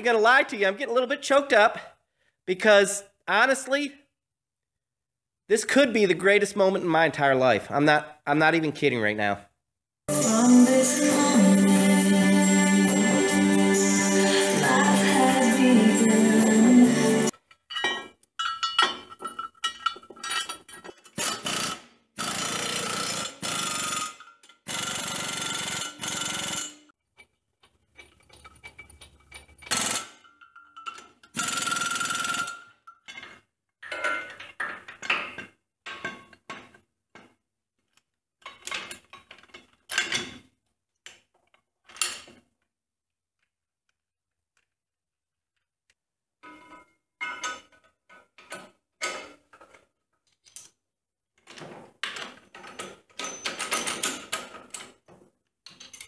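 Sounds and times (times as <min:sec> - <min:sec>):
metal parts clanking and rattling: 0:17.5 - 0:21.8, 0:24.0 - 0:24.7, 0:26.1 - 0:40.6, 0:41.3 - 0:42.4, 0:46.4 - 0:50.8, 0:51.4 - 0:56.0.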